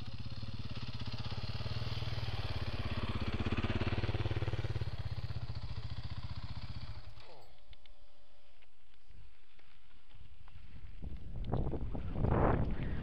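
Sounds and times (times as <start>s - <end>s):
dirt bike engine passing: 0.0s - 7.6s.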